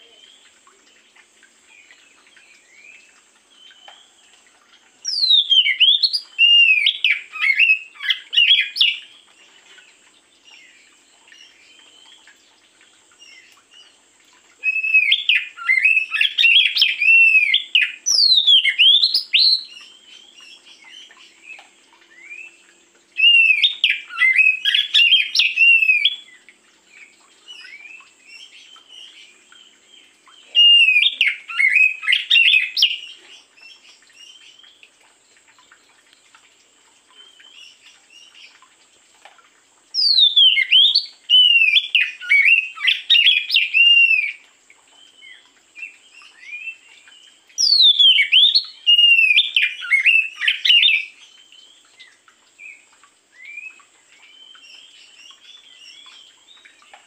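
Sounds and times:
magpie-robin singing whistled phrases: 5.0s - 9.0s, 14.6s - 19.8s, 30.5s - 33.1s, 40.0s - 44.4s, 47.6s - 51.1s.

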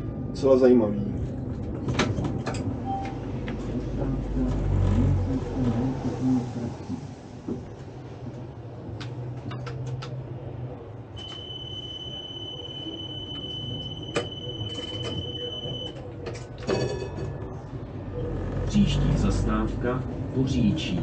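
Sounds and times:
tram rumbling on rails: 0.0s - 21.0s
high wheel squeal: 11.2s - 15.9s
brief ringing tone: 11.2s - 16.0s.

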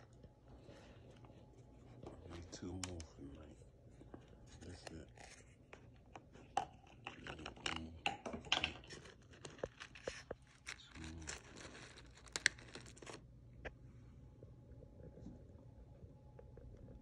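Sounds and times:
jars clicking and knocking: 6.2s - 9.8s
foil seal crinkling and tearing: 8.8s - 13.2s.

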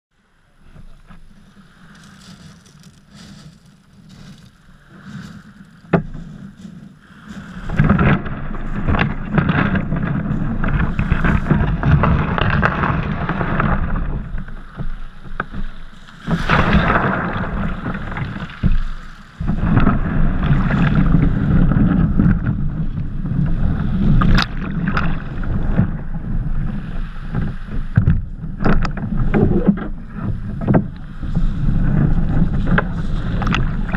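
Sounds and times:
boat and pebbles knocking: 0.6s - 33.9s
wind on microphone: 0.6s - 33.9s
waves washing over shingle: 1.0s - 33.9s.

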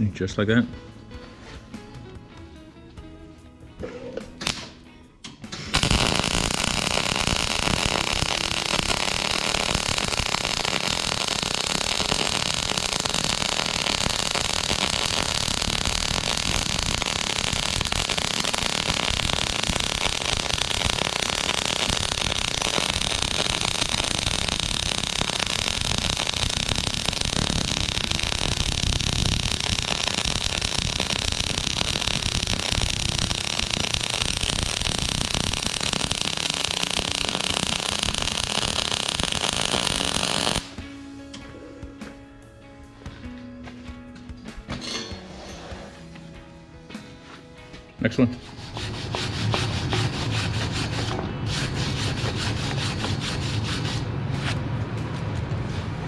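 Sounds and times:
welding arc crackling hiss: 5.7s - 40.7s.

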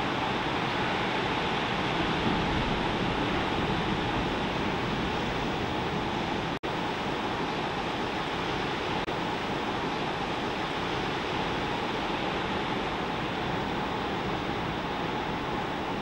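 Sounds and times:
ocean surf breaking: 0.0s - 6.6s.

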